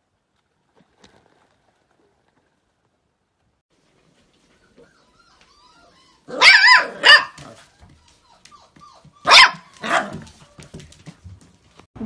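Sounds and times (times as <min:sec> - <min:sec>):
puppy whining: 0:04.4 - 0:10.8
puppy barking: 0:06.2 - 0:07.7, 0:08.4 - 0:10.4.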